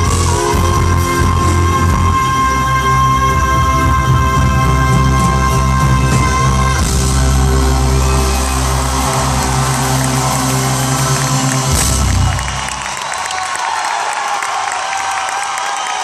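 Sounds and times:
crowd cheering: 0.0 - 2.8, 5.0 - 16.0
live band holding chord: 0.0 - 13.1
applause: 7.8 - 16.0.

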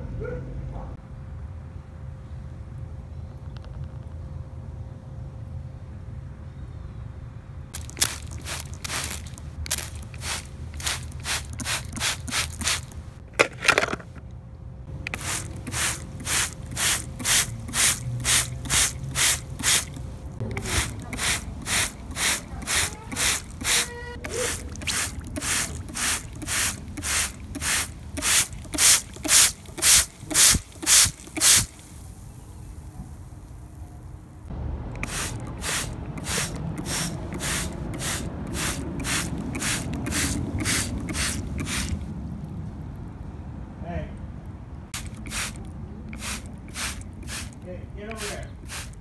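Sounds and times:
spray bottle squirts: 7.8 - 13.5, 15.0 - 32.8, 35.0 - 42.1, 45.0 - 49.0.

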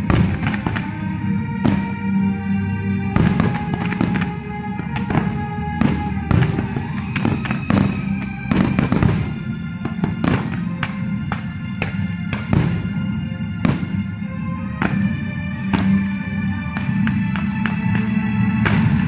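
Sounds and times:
fireworks bursting with bangs and pops: 0.0 - 19.0
music playing: 0.0 - 19.0.

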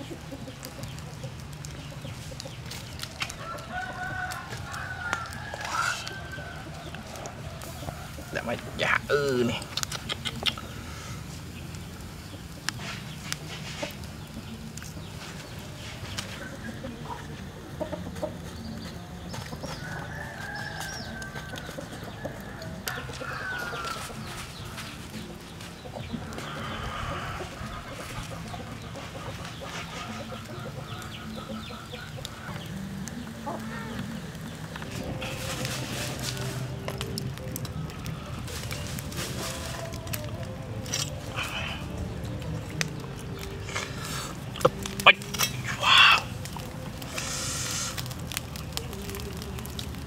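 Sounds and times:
chickens clucking: 0.0 - 49.9
yard ambience: 0.0 - 50.0
sharp clicks: 9.6 - 10.7.

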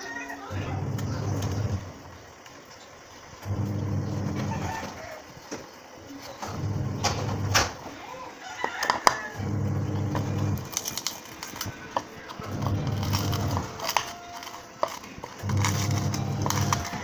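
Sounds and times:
low humming sound: 0.4 - 5.4, 6.3 - 7.8, 9.3 - 17.0
metal spoon scraping plastic bowl: 8.7 - 17.0.

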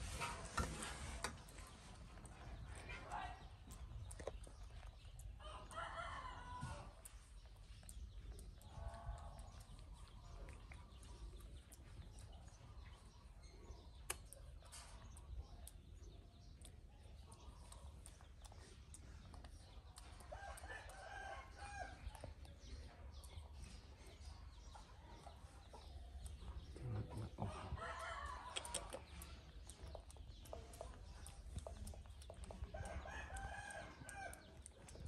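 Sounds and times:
faint clicks: 6.4 - 26.9, 28.2 - 35.0.

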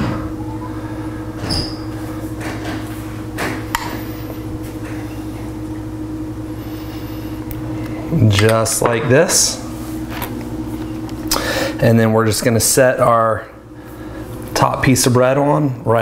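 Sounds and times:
low hum: 0.0 - 14.6.

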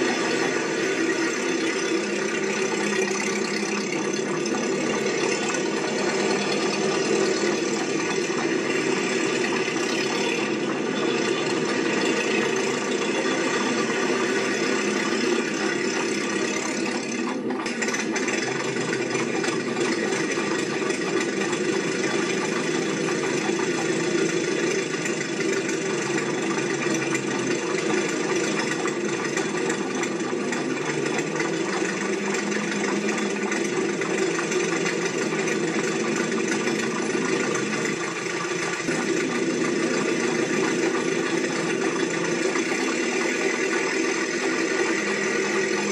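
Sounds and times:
steady mechanical drone: 0.0 - 45.9.

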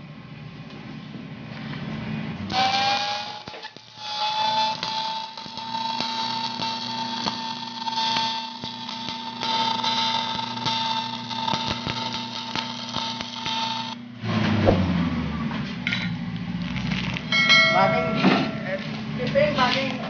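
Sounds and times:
welding arc crackling hiss: 2.5 - 14.0
low rumble and knock: 14.3 - 19.5.

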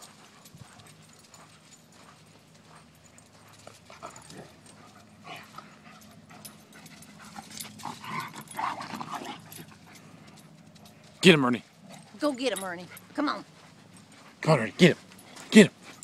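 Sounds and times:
dogs vocalising: 2.6 - 11.0.

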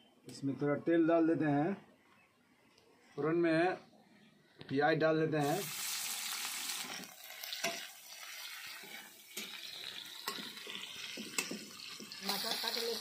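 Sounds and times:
onions sizzling in oil: 5.4 - 13.0.

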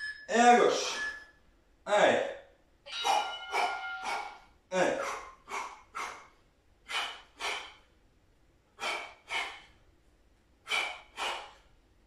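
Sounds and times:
man's sharp forced exhalations: 5.0 - 7.9, 10.6 - 11.7.

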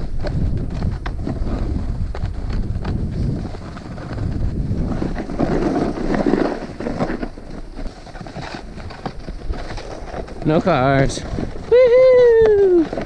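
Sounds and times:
snowboard scraping on ice: 0.0 - 13.0
wind on microphone: 0.0 - 13.0.

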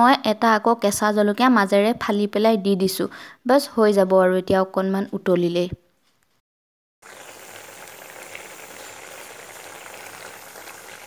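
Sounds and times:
curry bubbling in a wok: 7.0 - 11.0.

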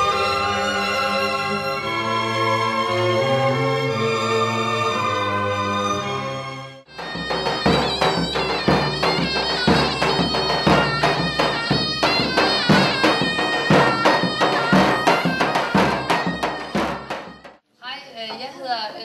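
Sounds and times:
wind instrument melody: 0.0 - 17.6
steady drum beat: 6.9 - 17.6.

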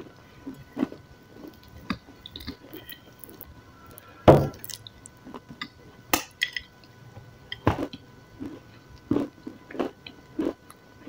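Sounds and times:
wet chewing and biting: 0.8 - 3.5.

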